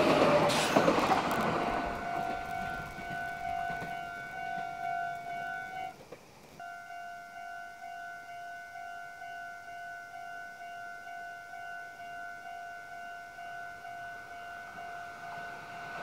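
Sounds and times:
level-crossing warning bell ringing: 0.0 - 6.0, 6.6 - 16.0
passing train rumble: 0.0 - 8.1, 10.1 - 16.0.

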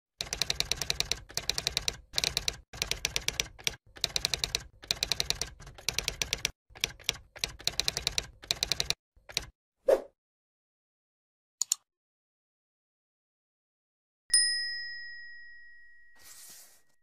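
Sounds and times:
rapid keyboard typing clicks: 0.2 - 9.5.

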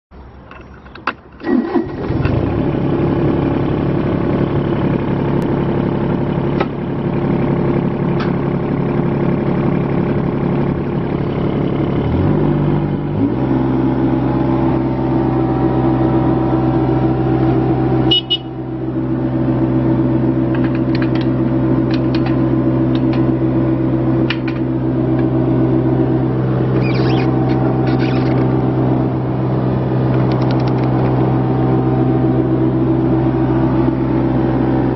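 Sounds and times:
diesel engine running: 0.2 - 34.9
control clicks and rattles: 20.5 - 23.3, 30.1 - 31.2.

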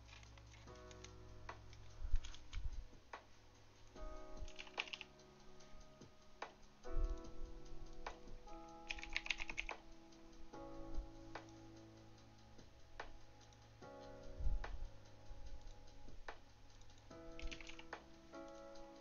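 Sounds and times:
background music with sustained chords: 0.0 - 19.0
computer keyboard typing: 2.2 - 2.6, 4.4 - 5.2, 8.8 - 9.8, 17.4 - 18.0.

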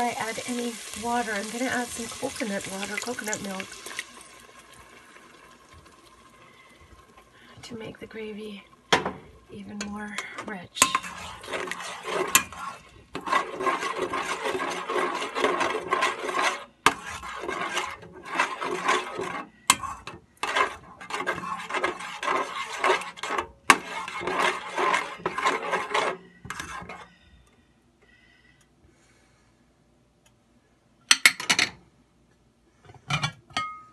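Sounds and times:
whisk stirring thick gravy in pot: 0.0 - 6.2, 9.6 - 27.1.

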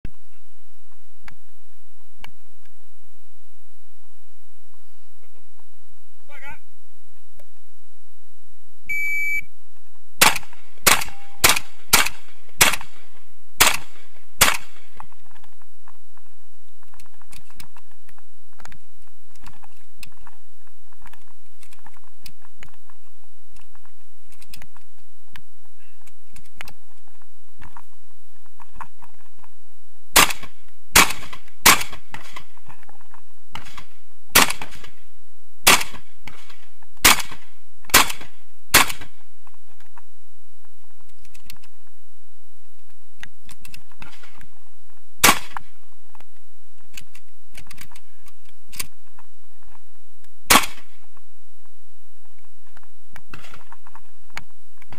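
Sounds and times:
shotgun shots: 10.2 - 15.0, 30.1 - 32.5, 33.6 - 35.0, 35.6 - 39.2, 45.2 - 45.6, 50.5 - 51.0
faint handling clicks and rustling: 42.7 - 50.3.

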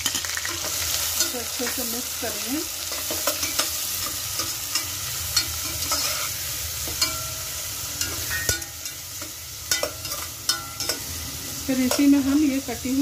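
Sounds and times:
onions sizzling in hot oil: 0.0 - 13.0
metal spatula scraping pot: 2.9 - 11.2.

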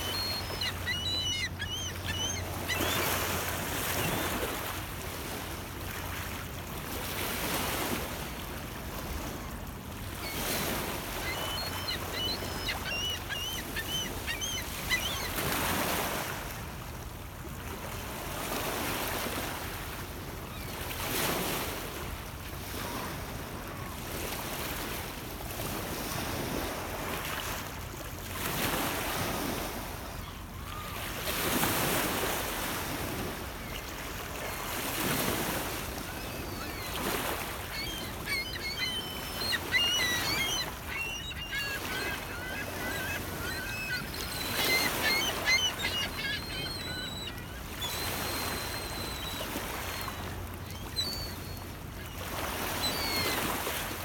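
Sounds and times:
high bird chirps: 0.0 - 3.1, 11.2 - 15.3, 37.7 - 49.2.

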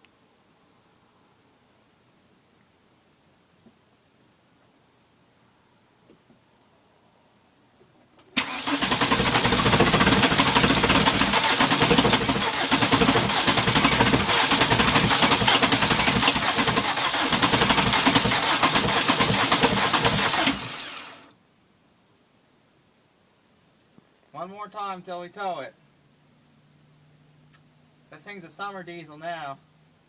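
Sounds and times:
diesel engine cranking on starter: 8.2 - 21.3.

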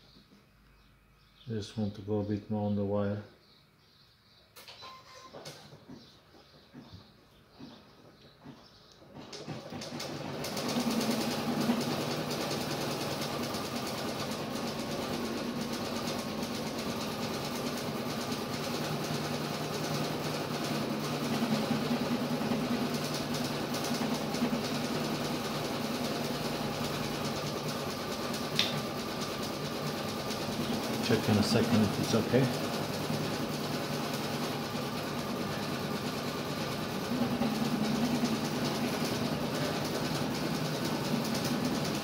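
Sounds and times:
sharp click: 28.6 - 28.8.

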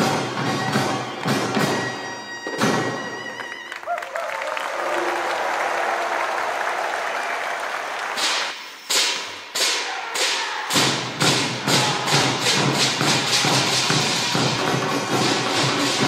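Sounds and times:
applause: 3.1 - 8.6
drum strokes: 8.2 - 16.0.

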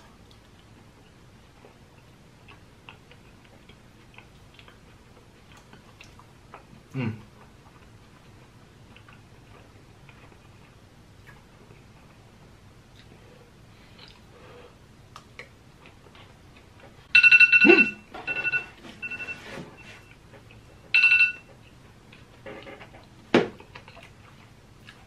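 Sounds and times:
phone alarm tone: 17.1 - 20.1, 20.9 - 21.5.

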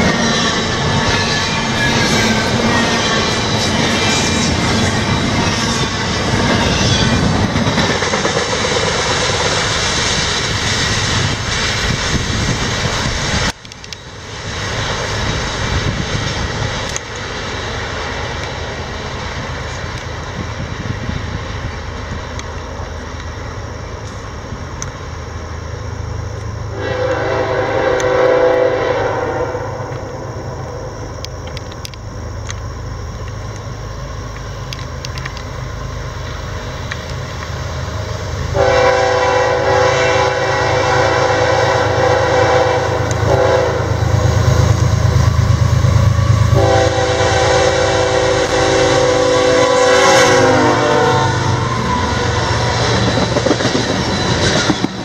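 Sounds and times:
diesel locomotive rumble: 0.0 - 55.0
train wheel and rail noise: 0.0 - 55.0
locomotive air horn blast: 26.7 - 30.0, 38.5 - 44.2, 46.2 - 52.8.

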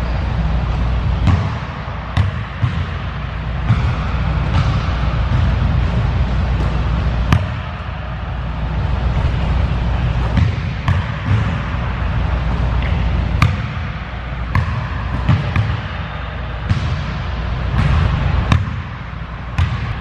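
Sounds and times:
steady low rumble: 0.0 - 20.0
basketball knocking against rim: 10.2 - 11.6
basketball bouncing on hardwood floor: 10.2 - 11.7, 12.5 - 13.9, 14.5 - 15.9, 16.7 - 17.1, 17.7 - 18.9, 19.6 - 20.0.

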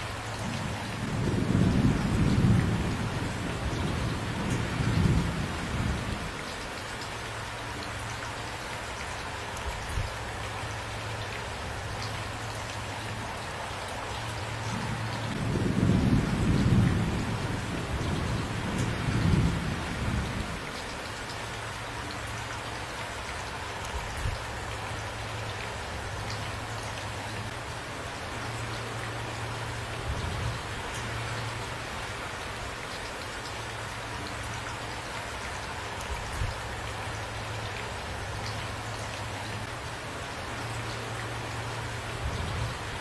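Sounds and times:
steady rain falling: 0.0 - 43.0
thunder rumbling: 0.6 - 6.3, 14.4 - 20.7.

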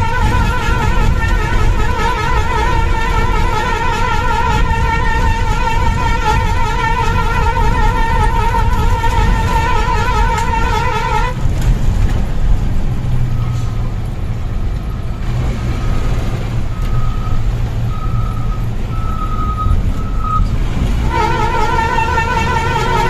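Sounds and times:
bus engine running: 0.0 - 23.0
road rumble: 0.0 - 23.0.

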